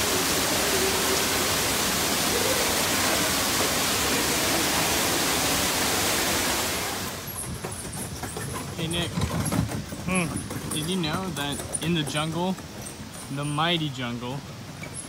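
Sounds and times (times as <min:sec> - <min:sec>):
loud rushing hiss: 0:00.0 - 0:07.2.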